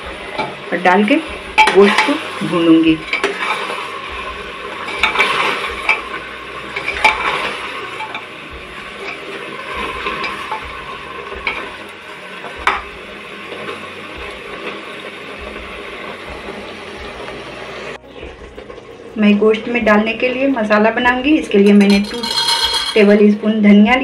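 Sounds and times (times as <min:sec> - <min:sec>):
meat sizzling in a pot: 0:00.0 - 0:24.0
metal spoon scraping a pot: 0:04.8 - 0:08.3, 0:21.7 - 0:23.1.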